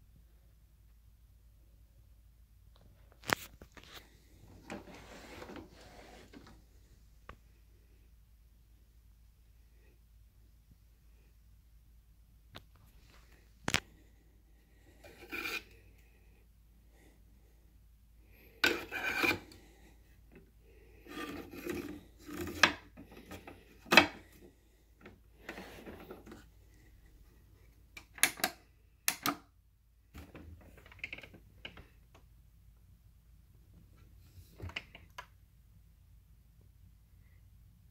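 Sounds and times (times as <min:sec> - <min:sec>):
plastic vacuum rubbing and scraping: 0:04.4 - 0:06.6, 0:15.0 - 0:15.8, 0:18.6 - 0:19.7, 0:21.0 - 0:24.4, 0:25.4 - 0:26.5.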